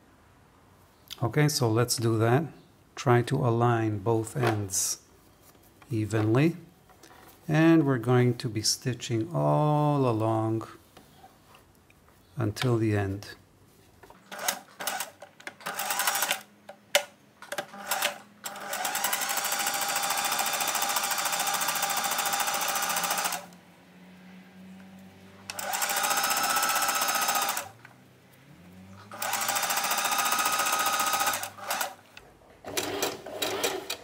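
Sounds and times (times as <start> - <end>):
sewing machine stitching: 14.3 - 16.4, 17.5 - 23.5, 25.5 - 27.8, 29.0 - 32.0, 32.6 - 34.0.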